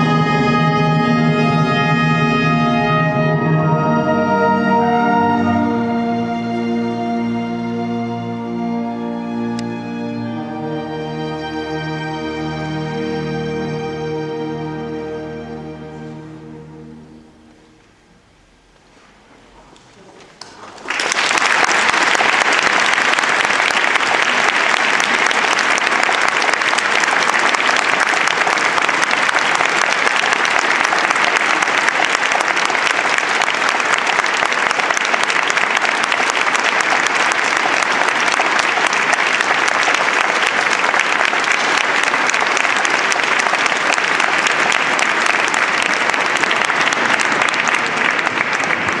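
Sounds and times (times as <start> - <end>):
audience applauding: 19.8 - 49.0.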